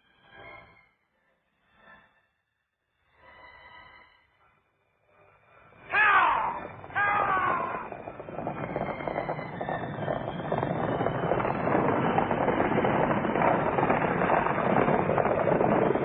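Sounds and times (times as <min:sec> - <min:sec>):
horses galloping: 0:06.0 - 0:16.0.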